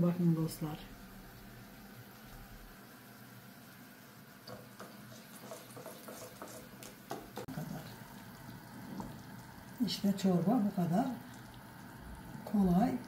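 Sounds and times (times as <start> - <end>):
soup boiling and bubbling: 0.8 - 13.0.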